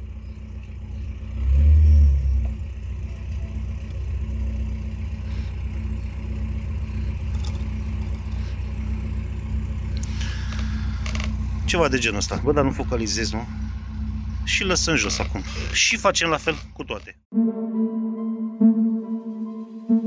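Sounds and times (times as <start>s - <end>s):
low mechanical hum: 0.0s - 15.8s.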